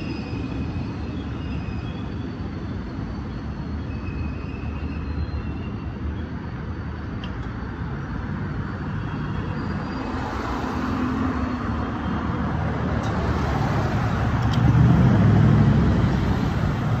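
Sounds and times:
cars driving over railroad tracks: 0.0s - 17.0s
pickup truck passing close: 10.0s - 17.0s.

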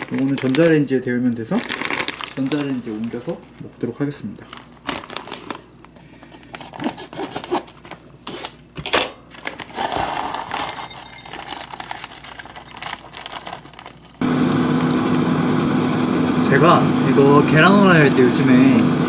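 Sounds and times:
plastic pouch crinkling and tearing: 0.0s - 8.6s, 9.3s - 14.2s
food rustling into a bowl: 9.3s - 14.2s
egg frying hiss: 13.9s - 19.0s.

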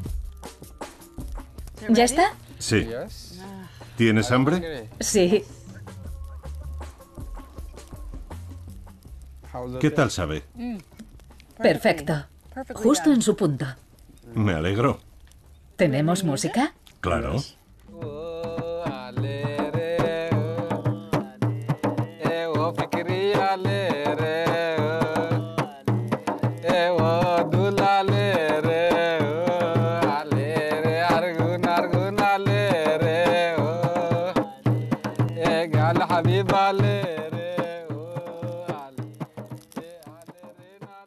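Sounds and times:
hand drum beat: 0.0s - 13.8s, 17.9s - 41.0s
person singing ornamented melody: 17.9s - 41.0s.

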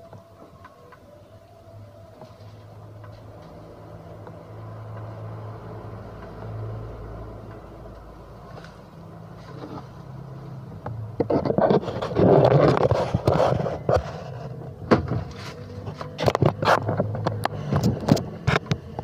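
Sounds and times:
hands scraping and rubbing: 11.2s - 14.6s.

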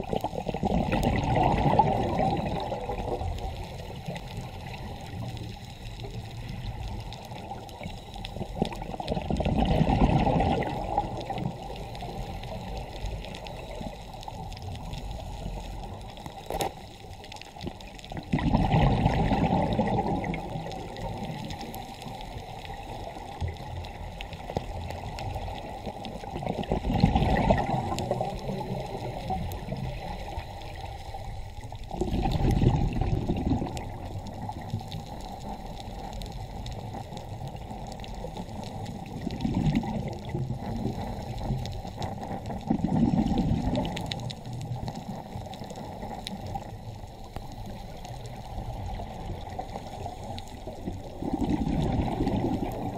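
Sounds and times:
diver's exhaled bubbles: 0.0s - 3.5s, 8.6s - 12.2s, 18.2s - 21.8s, 25.8s - 30.2s, 31.9s - 34.7s, 39.0s - 41.6s, 42.5s - 44.2s, 50.7s - 52.9s
underwater rush of water: 0.0s - 52.9s.

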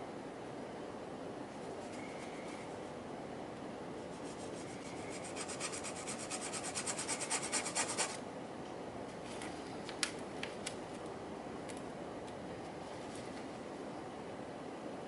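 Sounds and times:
metal rod rubbed on sandpaper: 4.1s - 8.2s.

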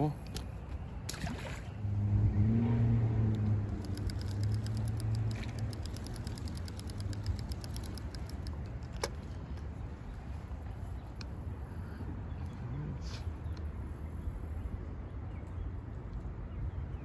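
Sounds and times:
fishing reel ticking: 3.3s - 9.1s.

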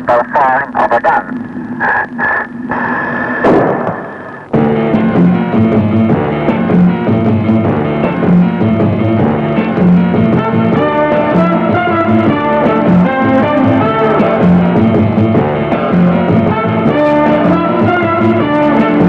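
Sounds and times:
rock music with guitar and drums: 3.8s - 19.0s.

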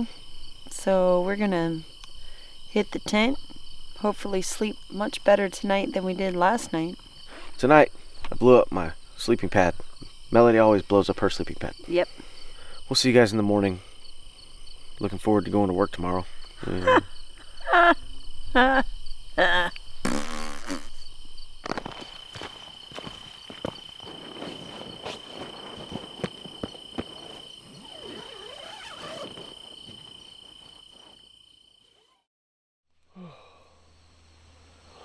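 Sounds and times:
insects trilling: 0.0s - 32.2s, 33.1s - 35.0s
tent fabric rustling and clicks: 21.6s - 31.3s.

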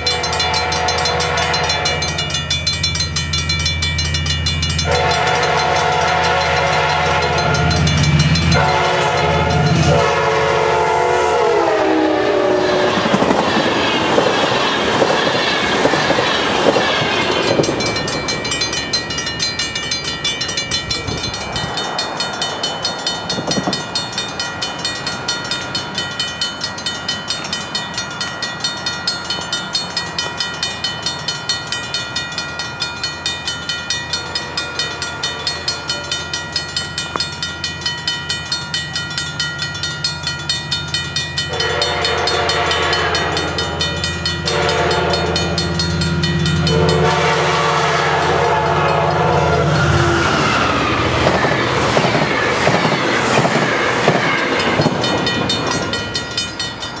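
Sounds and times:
train horn blasts: 0.0s - 2.3s, 4.8s - 13.7s, 41.5s - 52.6s
crossing warning bell ringing: 0.0s - 57.0s
diesel locomotive rumble: 0.0s - 57.0s
passing train noise: 0.0s - 57.0s.

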